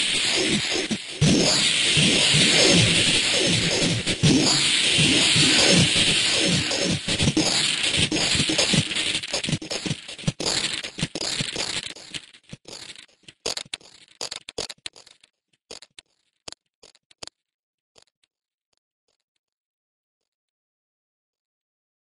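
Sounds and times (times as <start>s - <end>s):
crackling electronic sound effect: 0.0s - 16.0s.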